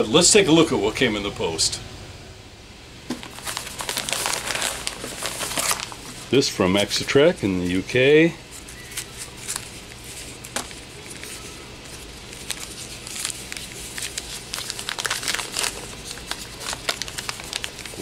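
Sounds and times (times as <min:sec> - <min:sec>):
paper wrapping crinkling: 0:03.1 - 0:06.4, 0:08.5 - 0:18.0.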